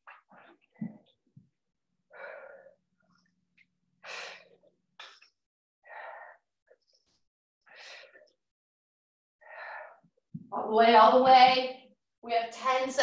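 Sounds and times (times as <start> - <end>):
person breathing hard: 2.1 - 2.8, 5.8 - 6.5, 9.4 - 10.1.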